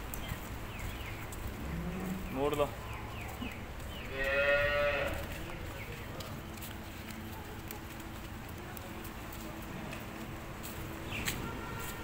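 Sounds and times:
cow mooing: 4.1 - 5.2.

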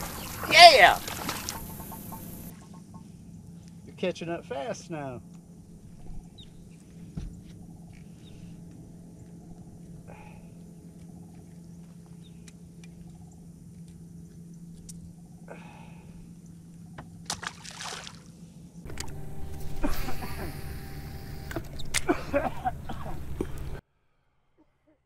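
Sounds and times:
short water splashes: 0.0 - 2.5, 17.3 - 18.3
light water sounds: 0.0 - 3.1, 17.3 - 18.3
electric trolling motor humming: 0.0 - 3.8, 18.9 - 23.8.

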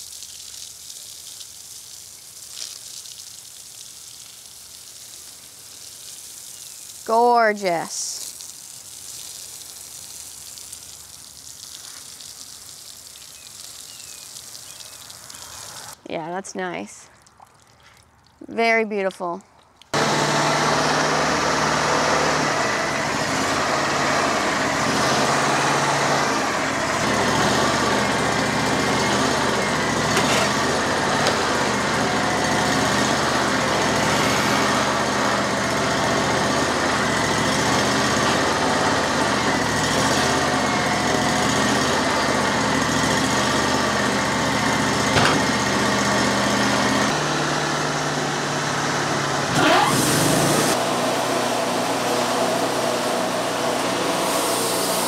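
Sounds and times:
bandsaw mill cutting log: 20.0 - 55.0.

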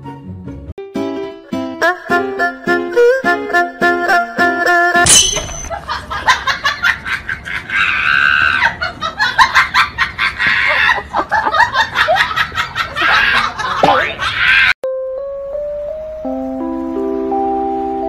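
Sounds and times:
person laughing heartily: 5.7 - 14.7
simple melody of steady tones: 14.8 - 18.0.

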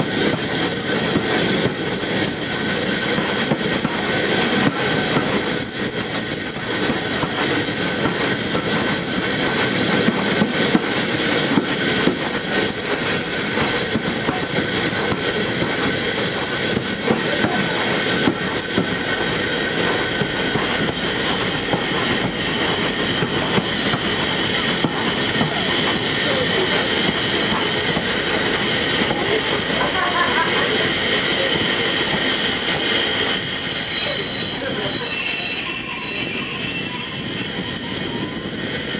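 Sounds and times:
steam locomotive wheels clanking: 0.0 - 38.9
steady high tones: 32.8 - 38.7.

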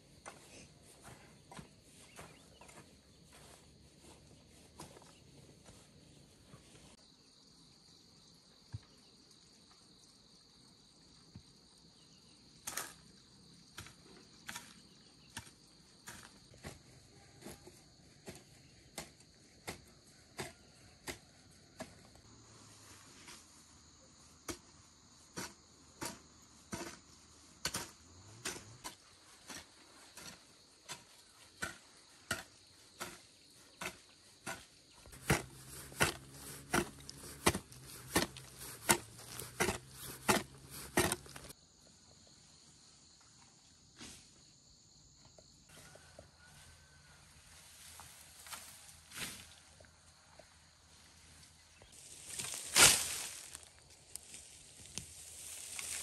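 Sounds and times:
high-pitched insect chorus: 0.0 - 20.8, 28.9 - 56.0.

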